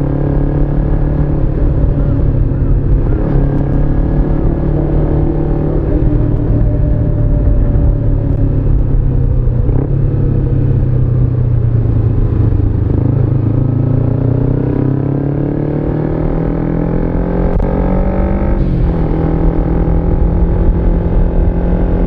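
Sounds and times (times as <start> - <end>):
motorcycle engine accelerating: 0.0 - 22.0.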